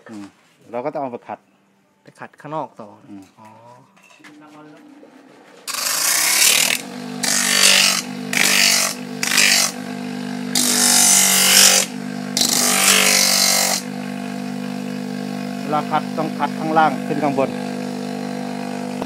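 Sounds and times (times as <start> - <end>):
coconut shell grinding on sandpaper: 5.6 - 19.0
electric motor humming: 5.7 - 19.0.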